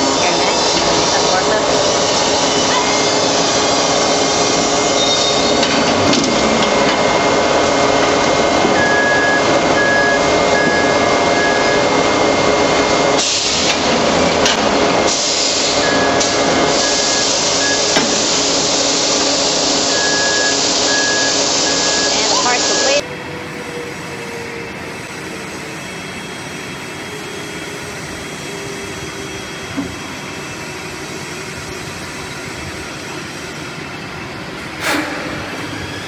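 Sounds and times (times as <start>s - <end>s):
metalworking shop noise: 0.0s - 36.0s
short warning beeps: 8.8s - 11.9s, 19.9s - 23.0s.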